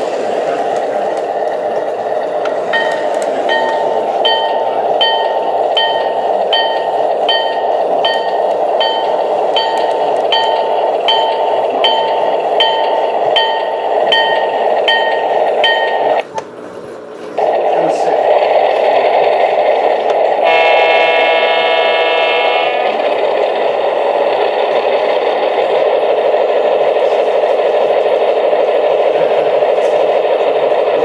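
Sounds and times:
diesel engine rumble: 0.0s - 31.0s
locomotive bell ringing: 2.6s - 16.2s.

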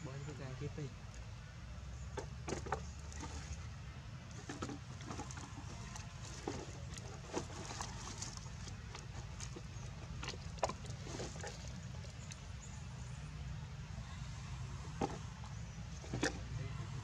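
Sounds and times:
dry leaves and plastic crackling: 4.3s - 12.6s.

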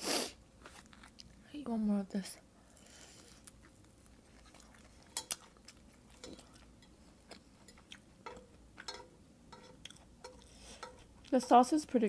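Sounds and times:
chopsticks tapping metal pan: 8.2s - 11.9s.

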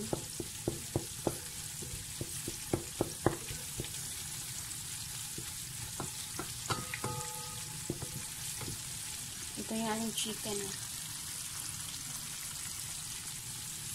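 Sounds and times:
roux sizzling in a metal pot: 0.0s - 13.9s.

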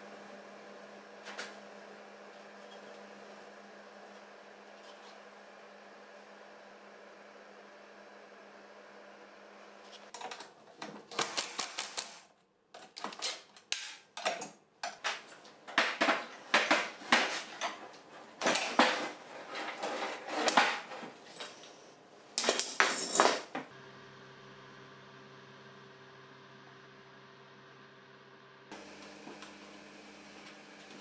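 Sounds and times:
metal parts clinking on workbench: 22.4s - 23.6s.

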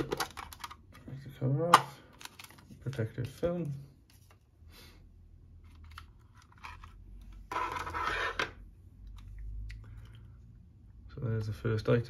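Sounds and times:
plastic crinkling and scraping: 5.6s - 8.6s.

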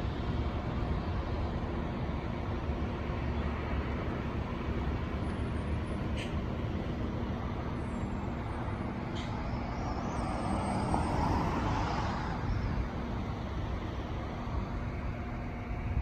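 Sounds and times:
low traffic hum: 0.0s - 16.0s
vehicle passing: 9.2s - 13.7s.

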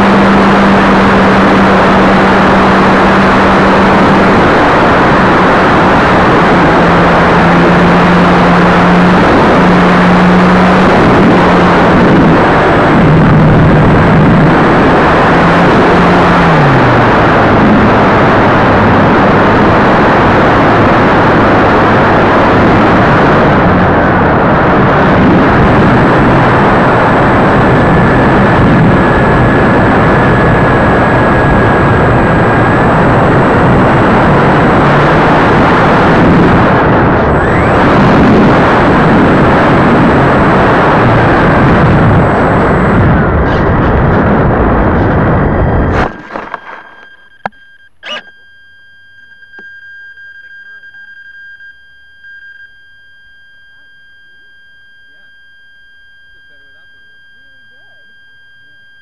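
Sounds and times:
wind rush on microphone: 0.0s - 48.2s
electric motor and propeller hum: 0.0s - 59.0s.

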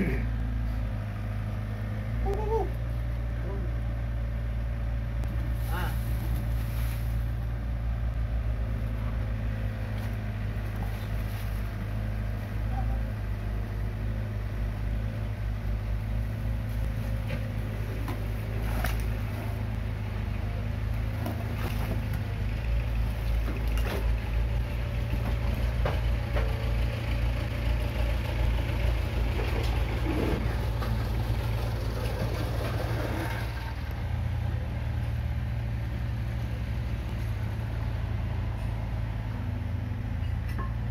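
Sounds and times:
excavator diesel engine running: 0.0s - 40.9s.

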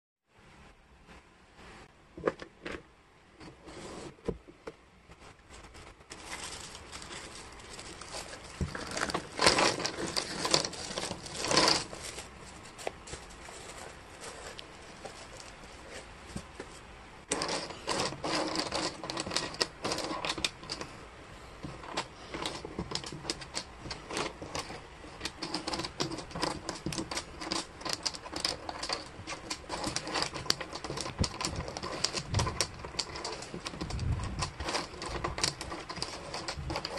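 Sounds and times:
wooden puzzle pieces clattering: 5.7s - 15.5s, 17.3s - 20.9s, 21.6s - 36.9s.

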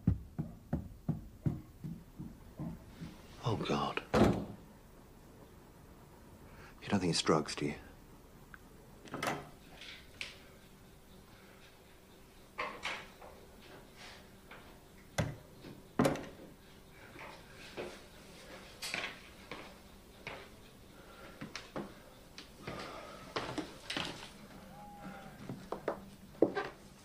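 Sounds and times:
footsteps in a house: 0.0s - 3.4s, 9.5s - 27.0s
faint steady hum: 0.0s - 27.0s
door opening and shutting: 4.1s - 4.6s, 9.1s - 10.0s.

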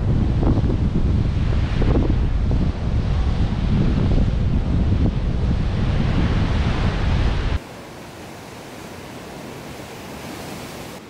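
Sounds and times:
wind buffeting the microphone: 0.0s - 7.6s
ocean surf breaking over rocks: 1.1s - 11.0s.

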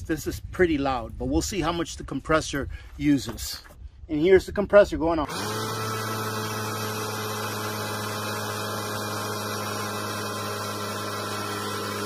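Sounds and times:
air compressor humming: 5.3s - 12.0s.

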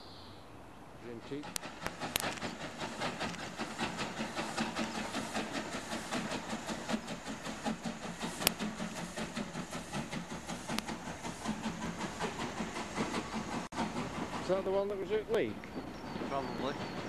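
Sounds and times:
steam locomotive passing: 0.8s - 17.0s
sharp clicks: 1.4s - 13.6s.

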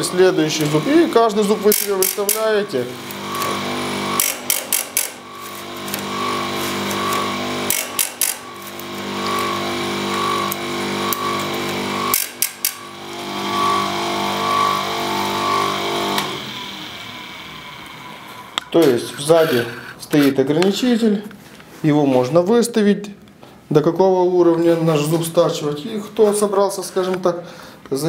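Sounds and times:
electric grinder motor running: 0.0s - 20.0s
grinding wheel on metal clacking: 0.0s - 20.4s.

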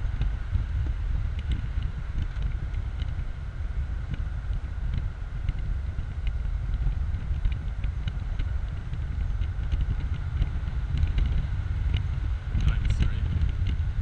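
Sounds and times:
car engine: 0.0s - 14.0s
wind buffeting microphone: 0.0s - 14.0s.

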